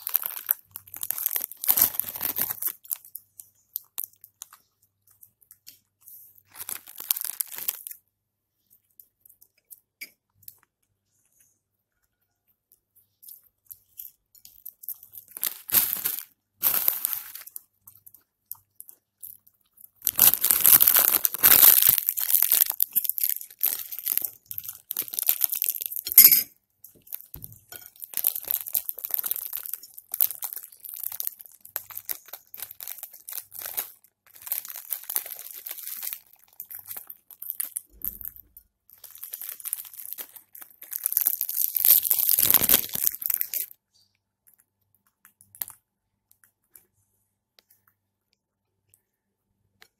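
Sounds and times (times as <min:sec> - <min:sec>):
plastic bag crinkling: 0:00.0 - 0:04.7, 0:06.0 - 0:08.0, 0:13.9 - 0:18.2, 0:18.9 - 0:26.2, 0:26.9 - 0:43.8.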